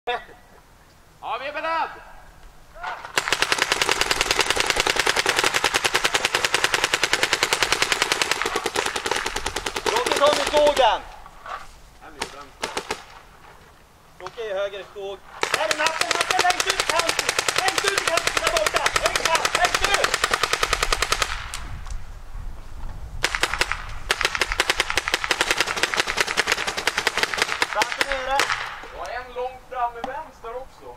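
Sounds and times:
paintball marker firing rapidly: 3.1s - 11.0s, 12.2s - 13.2s, 15.4s - 21.6s, 23.2s - 28.9s.

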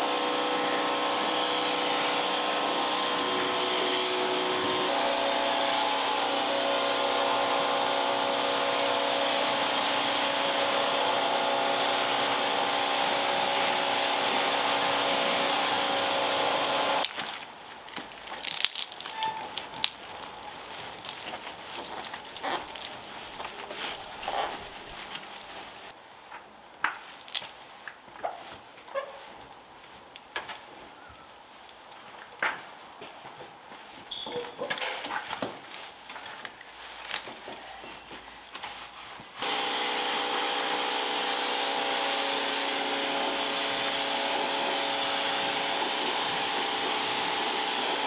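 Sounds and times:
vacuum cleaner motor whine: 0.0s - 17.0s, 39.4s - 48.0s.

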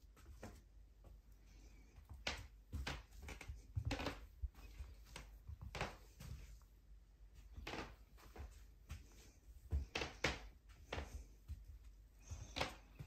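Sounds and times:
footsteps in clogs on vinyl floor: 0.0s - 13.0s
floor plates creaking: 2.0s - 6.6s, 7.4s - 13.0s.

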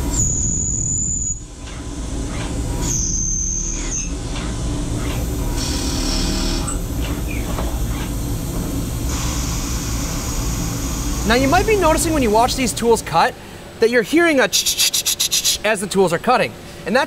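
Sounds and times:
lathe spindle running: 1.4s - 13.8s
high thin whine: 7.8s - 15.8s.

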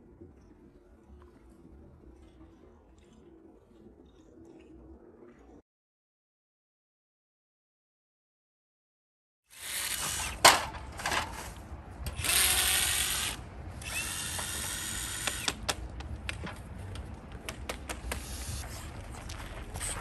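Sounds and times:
power tool running: 9.5s - 11.2s, 12.0s - 15.6s.

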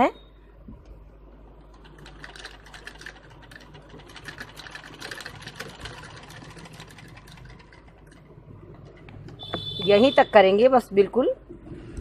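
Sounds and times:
needle clicking rapidly: 1.6s - 9.4s
sewing machine running: 1.6s - 9.7s.

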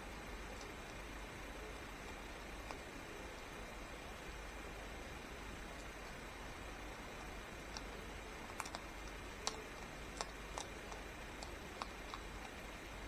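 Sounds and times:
steady hiss: 0.0s - 13.0s
hedgehog crunching kibble: 0.2s - 13.0s.

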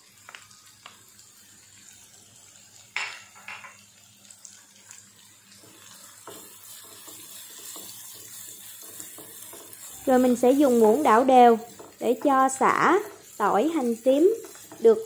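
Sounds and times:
food sizzling in a pan: 0.0s - 15.0s
spoon stirring in pan: 4.8s - 15.0s.

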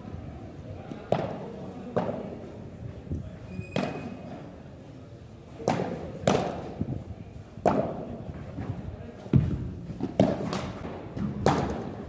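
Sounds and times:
ball struck with rackets: 5.6s - 6.9s, 7.6s - 8.1s, 9.4s - 12.0s.

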